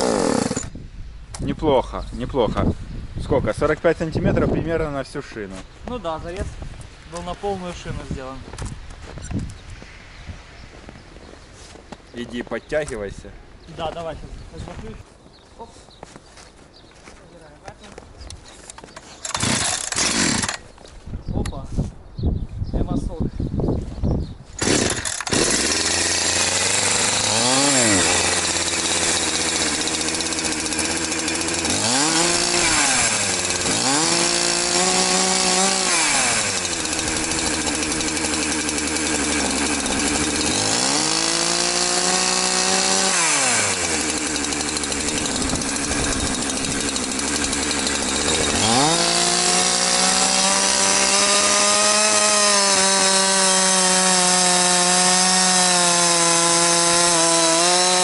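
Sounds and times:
chainsaw revving: 0:00.0 - 0:00.7, 0:19.2 - 0:20.6, 0:24.6 - 0:58.0.

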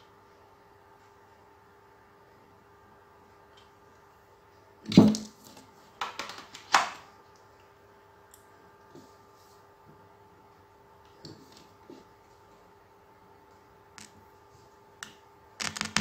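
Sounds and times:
faint steady hum: 0:00.0 - 0:16.0
clicks and knocks of cable: 0:05.0 - 0:07.0.

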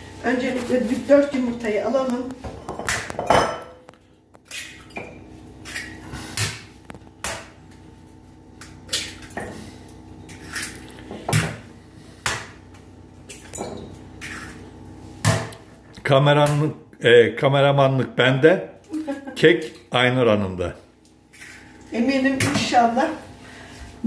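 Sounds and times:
eggs cracking on glass bowl: 0:02.7 - 0:06.0.

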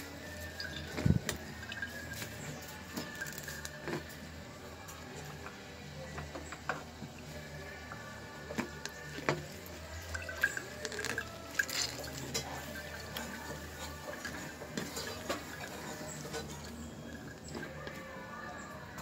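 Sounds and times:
wet squelching and dripping: 0:08.6 - 0:17.8.

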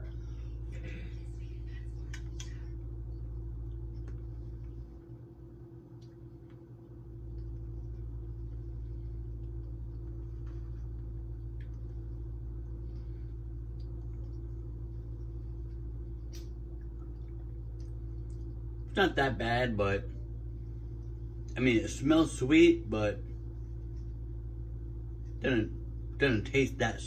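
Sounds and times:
low electrical appliance hum: 0:00.0 - 0:27.0.

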